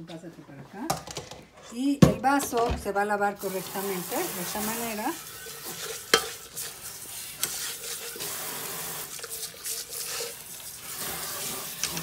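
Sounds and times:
tap water running into bowl: 3.4 - 12.0.

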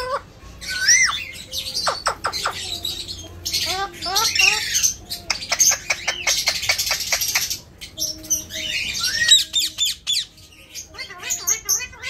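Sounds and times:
parakeet whistled chirps: 8.4 - 10.3.

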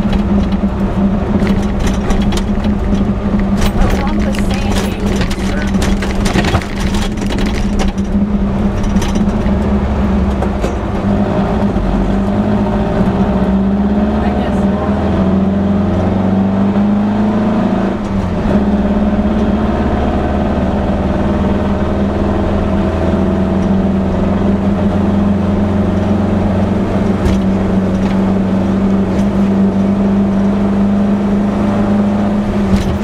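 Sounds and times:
sharp knocks from bumpy ride: 0.0 - 12.3, 26.6 - 31.0, 32.5 - 33.0
car engine running under load: 0.0 - 33.0.

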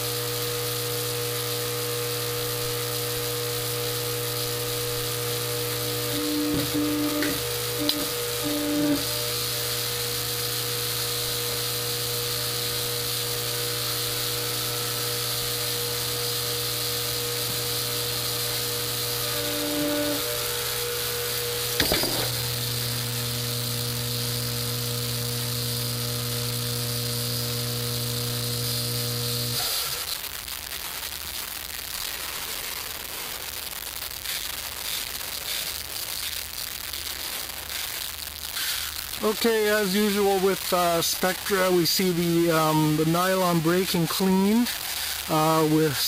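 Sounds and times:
test rig motor hum: 0.0 - 29.7.

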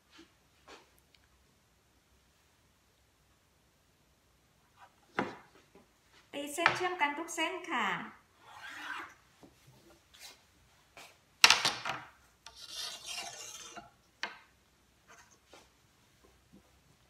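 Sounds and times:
ruler scraping on cloth: 8.4 - 9.2, 12.5 - 14.0, 15.1 - 15.7.

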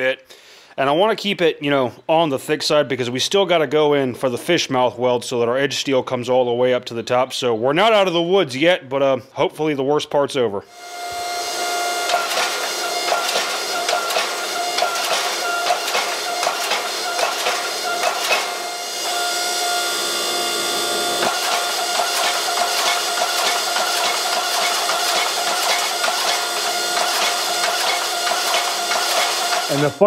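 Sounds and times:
steady mechanical hum: 10.7 - 30.0
hammer striking hot steel: 12.1 - 19.2, 21.2 - 30.0.

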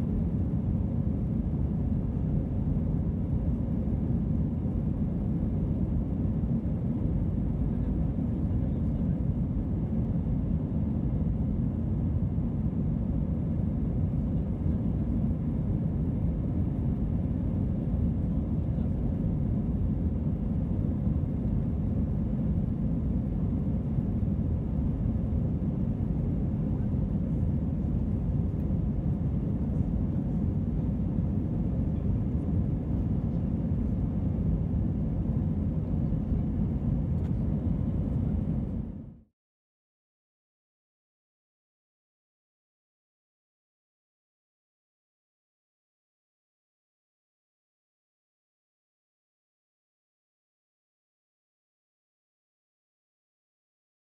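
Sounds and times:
airliner cabin rumble: 0.0 - 39.3.

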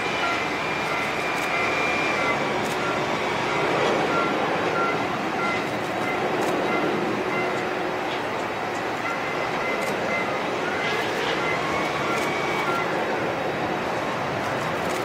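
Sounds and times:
jet engines rushing and whining: 0.0 - 15.0
short beeps: 0.1 - 7.7, 9.0 - 13.0.

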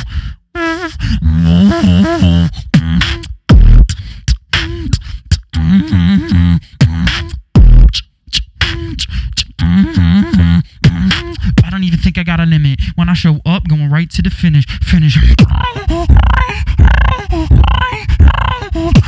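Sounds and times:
beatboxing into a microphone: 0.0 - 19.0
deep bass booms: 1.7 - 3.9, 7.6 - 7.9.

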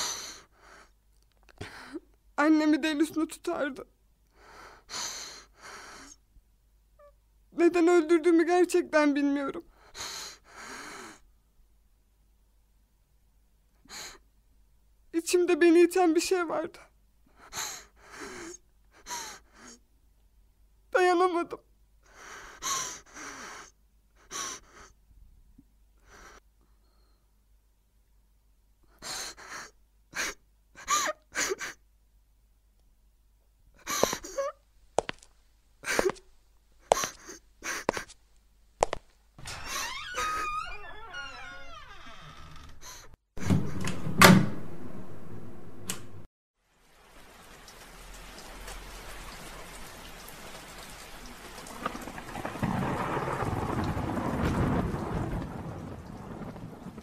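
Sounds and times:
steady rain: 17.4 - 19.8, 46.6 - 57.0
woman sobbing: 29.3 - 31.8, 33.8 - 34.6
low rumble of thunder: 51.5 - 57.0.

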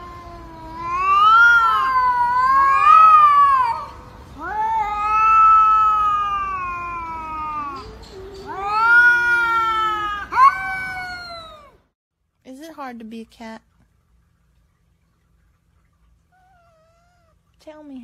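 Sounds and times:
cats yowling: 0.0 - 11.8, 16.3 - 17.4.

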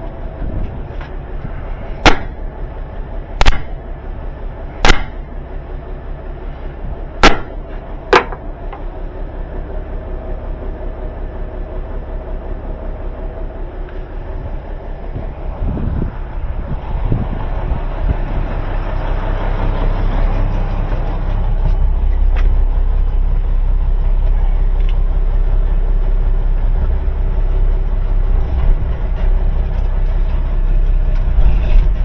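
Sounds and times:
diesel truck engine idling: 0.0 - 32.0
sledgehammer striking metal: 2.0 - 2.4, 3.4 - 3.8, 4.8 - 5.3, 7.2 - 8.4.

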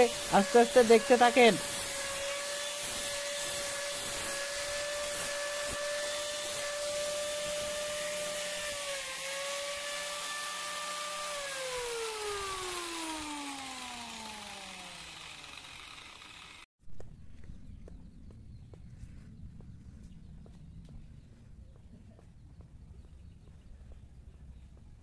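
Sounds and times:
angle grinder grinding steel: 0.0 - 16.7
grinder disc spinning down: 0.0 - 16.7.

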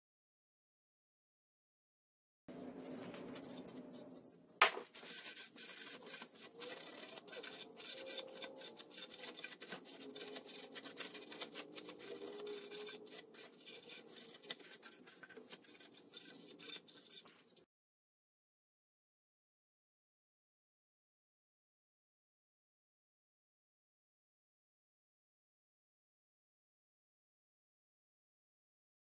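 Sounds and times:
hand tool scrubbing metal: 2.5 - 17.6.

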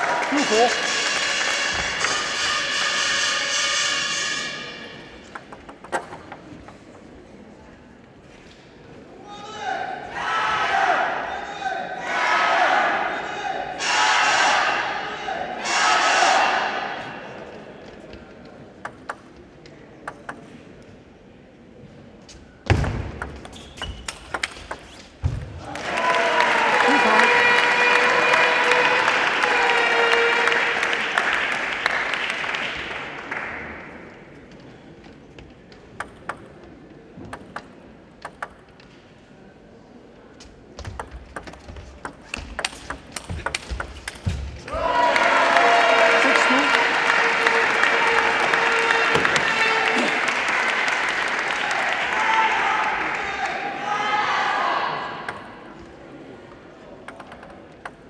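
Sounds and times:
table tennis ball bouncing: 5.2 - 6.8, 18.8 - 19.4, 20.0 - 20.5, 22.7 - 25.4, 35.7 - 38.9, 40.8 - 44.6, 57.0 - 58.0.

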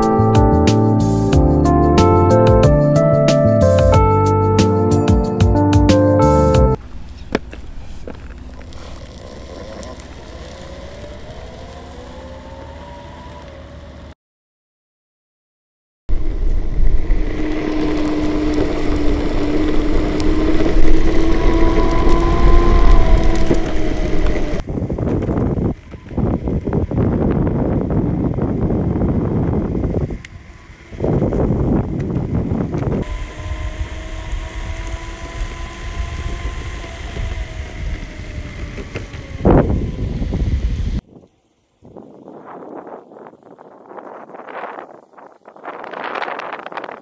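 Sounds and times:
wheel rumble: 0.0 - 14.1, 16.1 - 41.1
electric motor whine: 6.3 - 14.2, 16.1 - 47.0
low rumble: 16.1 - 24.7
wind on microphone: 16.1 - 47.0.

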